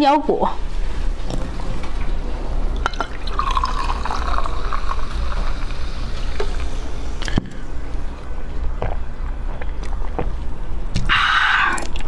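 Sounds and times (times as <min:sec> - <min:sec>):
steady low hum: 0:00.0 - 0:12.0
drink pouring into glass: 0:02.8 - 0:06.7.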